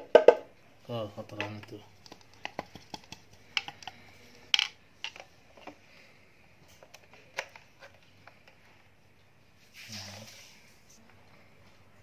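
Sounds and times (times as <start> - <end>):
plastic vacuum parts clicking and knocking: 0.0 - 0.5, 1.2 - 5.8, 6.8 - 8.6.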